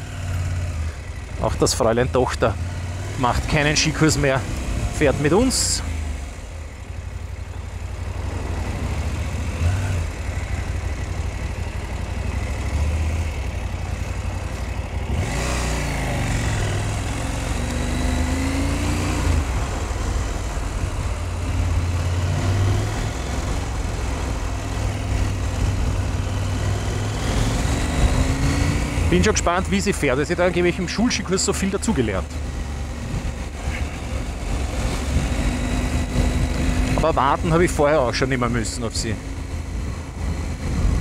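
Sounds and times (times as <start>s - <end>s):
motorcycle engine rumbling: 0.0s - 41.0s
wind rushing noise: 40.5s - 41.0s.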